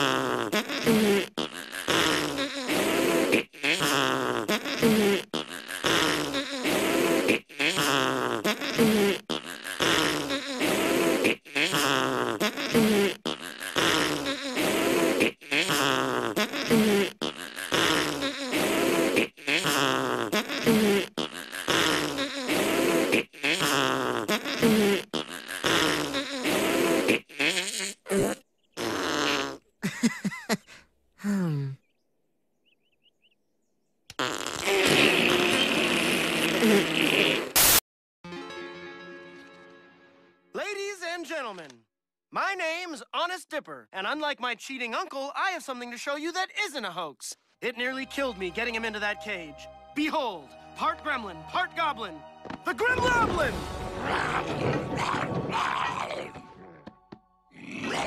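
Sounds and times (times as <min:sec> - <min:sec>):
cartoon raspberry sputter: 0:00.0 - 0:29.6, 0:34.1 - 0:37.8, 0:57.6 - 0:58.0.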